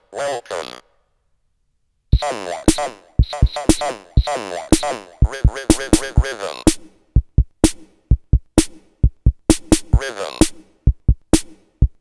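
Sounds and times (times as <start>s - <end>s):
robotic voice samples: 0.0s - 1.0s, 2.1s - 6.8s, 9.9s - 10.6s
drum machine hits: 2.2s - 12.0s.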